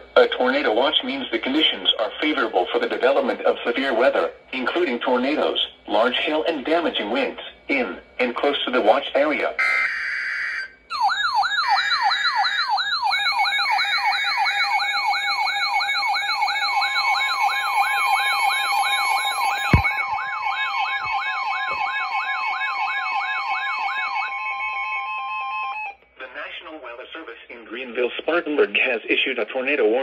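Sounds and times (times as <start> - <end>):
sweeping siren-like alarm tone: 9.6 - 26.0.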